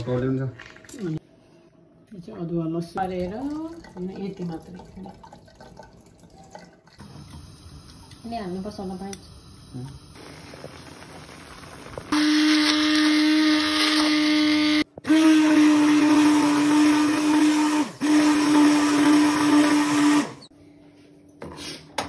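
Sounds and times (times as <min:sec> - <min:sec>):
immersion blender motor hum: 0:12.2 - 0:20.5.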